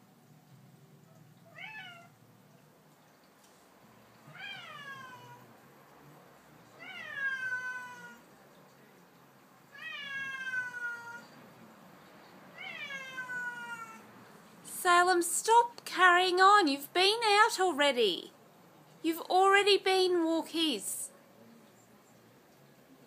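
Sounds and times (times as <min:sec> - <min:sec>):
cat meowing: 0:01.4 - 0:02.2, 0:04.3 - 0:05.5, 0:06.8 - 0:08.3, 0:09.7 - 0:11.4, 0:12.5 - 0:14.1.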